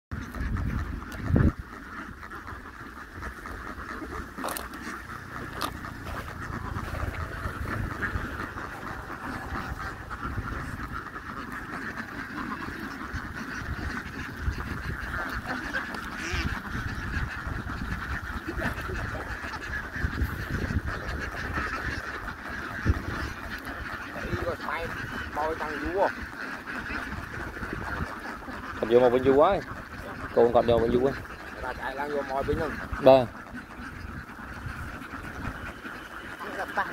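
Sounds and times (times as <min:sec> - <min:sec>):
flock of ducks quacking: 0:00.1 - 0:36.9
low rumble: 0:05.0 - 0:11.3.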